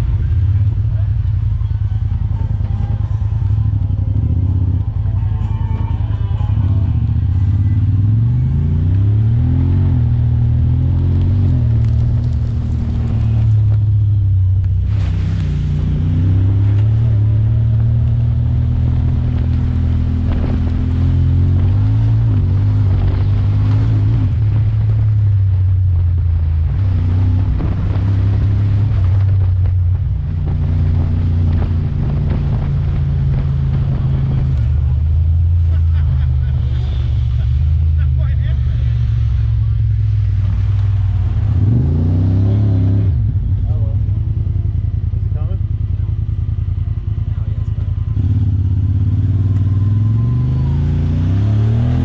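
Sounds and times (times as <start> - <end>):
engine revving: 0.0 - 52.0.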